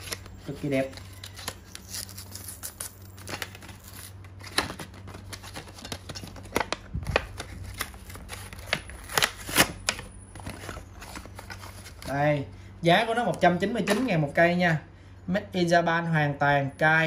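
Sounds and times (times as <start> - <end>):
packaging rustling: 0.0 - 12.3.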